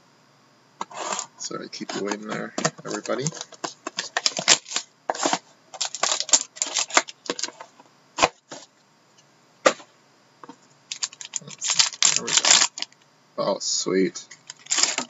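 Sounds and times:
packaging crackling and rustling: 0.8 - 7.6, 10.9 - 13.0, 14.3 - 15.0.

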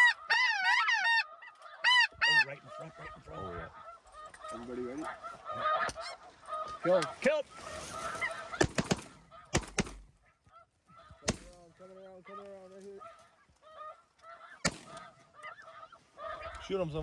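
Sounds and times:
geese honking: 0.0 - 17.0
shotgun fire: 8.6 - 10.0.

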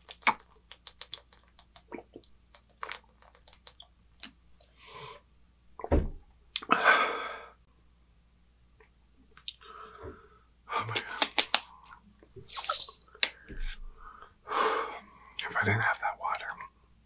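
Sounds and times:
mouth clicks and smacks: 0.0 - 4.8, 5.8 - 6.7, 8.8 - 9.7, 10.8 - 13.9, 15.2 - 16.6.

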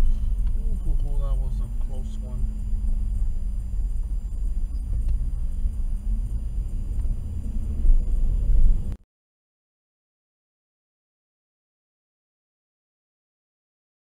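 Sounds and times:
car cabin road rumble: 0.0 - 9.0.

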